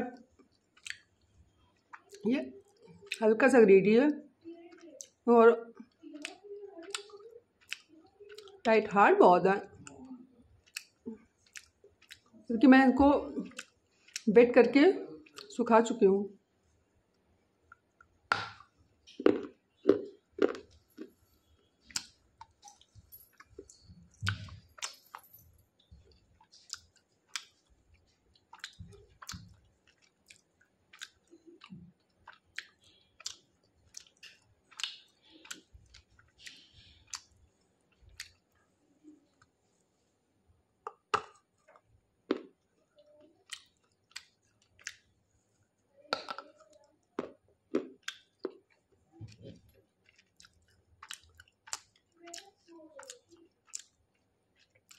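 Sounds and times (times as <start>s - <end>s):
chewing hard dried clay: 0.3s - 3.2s, 4.7s - 8.7s, 10.6s - 12.4s, 17.6s - 25.2s, 25.8s - 39.6s, 43.4s - 45.2s, 46.2s - 54.9s.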